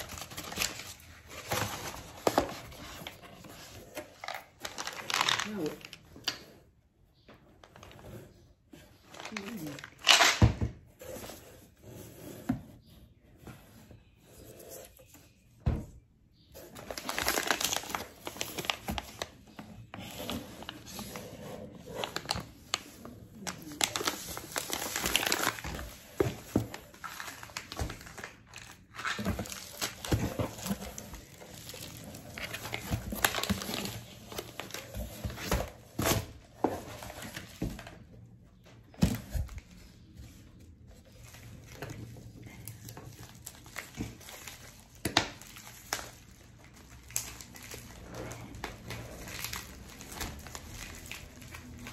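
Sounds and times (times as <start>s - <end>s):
packaging crinkling and rustling: 0.0s - 6.4s, 9.0s - 10.5s, 16.6s - 51.9s.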